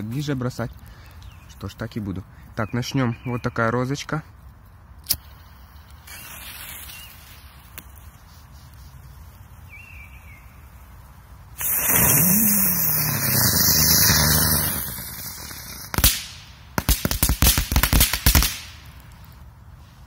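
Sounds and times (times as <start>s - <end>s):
crackling pops: 4.4s - 8.8s, 11.6s - 19.5s
firecracker fizzing: 5.1s - 8.2s, 11.5s - 19.2s.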